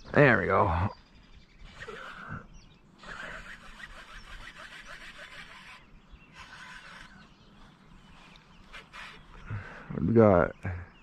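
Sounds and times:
fishing reel ticking: 3.1s - 5.8s.

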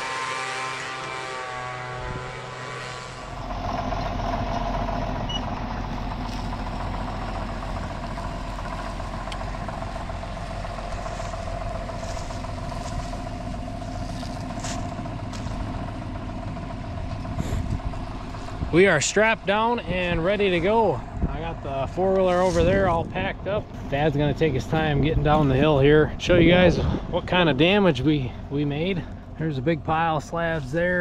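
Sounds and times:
machine hum: 0.0s - 31.0s
tractor engine running: 0.0s - 31.0s.

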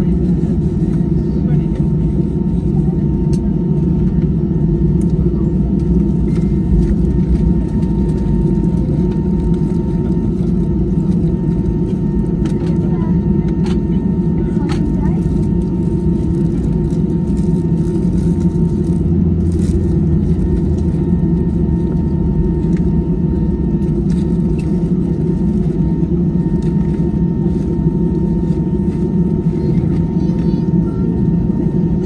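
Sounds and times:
jet engines idling: 0.0s - 32.0s.

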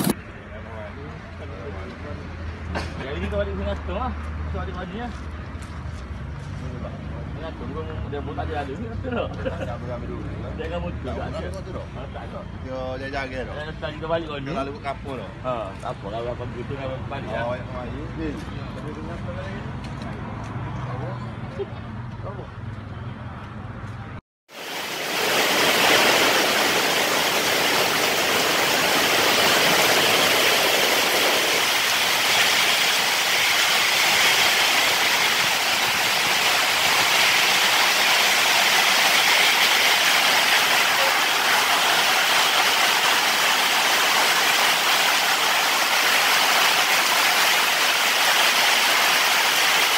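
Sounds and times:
heavy rain pouring: 24.5s - 49.9s.

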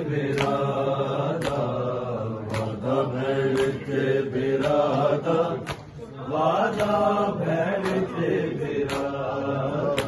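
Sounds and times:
men chanting together: 0.0s - 10.0s
chest-beating slaps: 0.2s - 1.8s, 2.4s - 6.0s, 6.7s - 7.1s, 7.7s - 10.0s.

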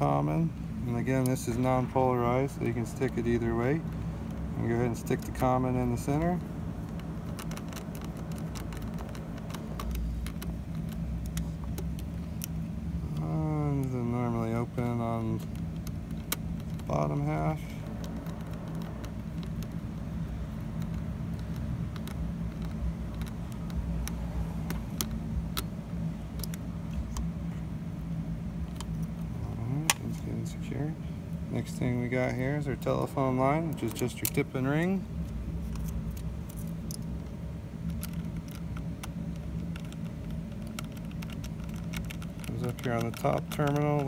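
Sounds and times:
low mechanical hum: 0.0s - 44.0s
small sharp clicks and taps: 5.1s - 14.0s, 15.2s - 27.3s, 35.2s - 44.0s
wires clicking into terminal block: 35.7s - 44.0s.

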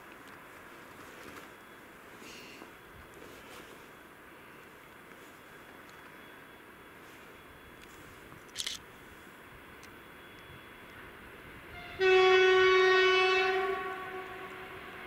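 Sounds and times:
locomotive horn blast: 11.7s - 15.0s.

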